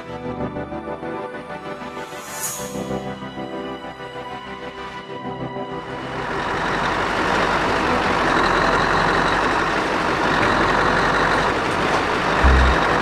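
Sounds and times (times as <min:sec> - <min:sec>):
diesel truck engine running: 0:05.8 - 0:13.0.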